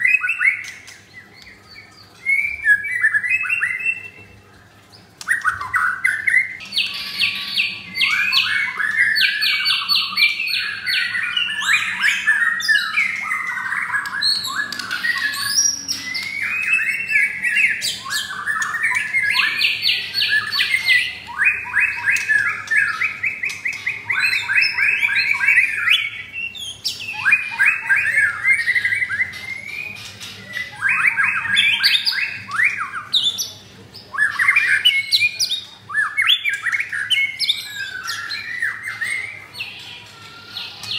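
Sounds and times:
songbird trilling and whistling: 0.0s - 4.4s, 5.2s - 40.9s.

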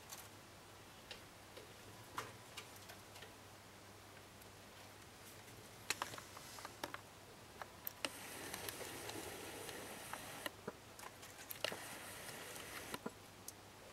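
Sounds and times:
faint clicks and ticks: 7.6s - 13.6s.

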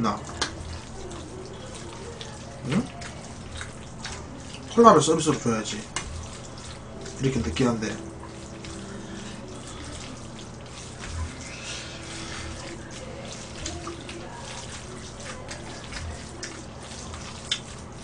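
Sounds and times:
wet chewing and slurping: 0.0s - 18.0s.

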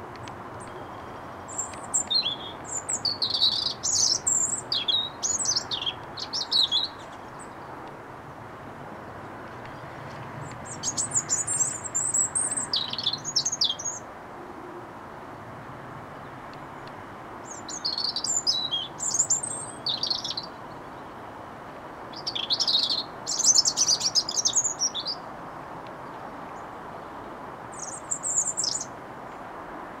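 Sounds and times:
low background noise: 0.0s - 30.0s
robin singing: 0.2s - 7.8s, 9.7s - 14.1s, 16.2s - 21.2s, 22.0s - 25.3s, 25.9s - 29.0s.

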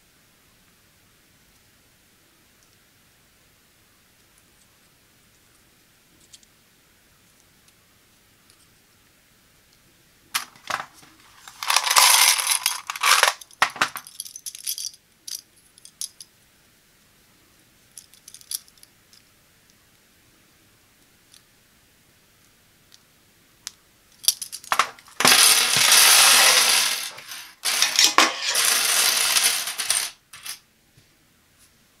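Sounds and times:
plastic clips clattering on table: 10.4s - 14.1s, 24.6s - 30.6s.

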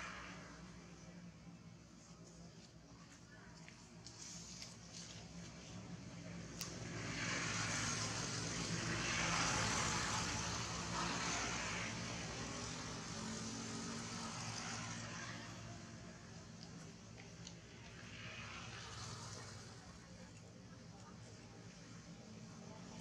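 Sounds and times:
passing vehicle engine hum: 5.7s - 20.3s.

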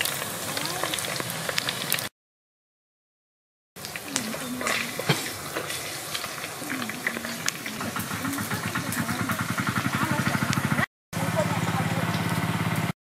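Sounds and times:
fish sizzling in hot oil: 0.0s - 2.1s, 3.8s - 10.8s
engine-like throb: 7.7s - 12.9s.

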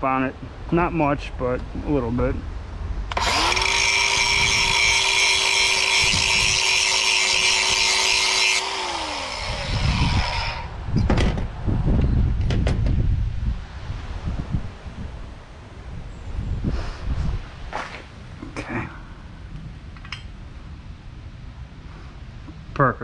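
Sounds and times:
electric grinder on metal: 3.1s - 10.8s
sharp knocks: 11.0s - 11.5s.

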